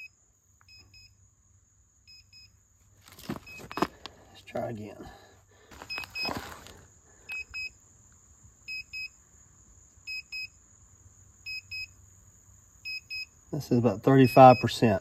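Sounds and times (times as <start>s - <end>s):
moisture meter beeping in pairs: 0.0s - 1.2s, 2.1s - 2.6s, 3.4s - 3.9s, 5.9s - 6.4s, 7.3s - 7.8s, 8.7s - 9.2s, 10.1s - 10.6s, 11.5s - 12.0s, 12.8s - 15.0s
handling rustle: 2.8s - 4.7s, 5.6s - 6.8s.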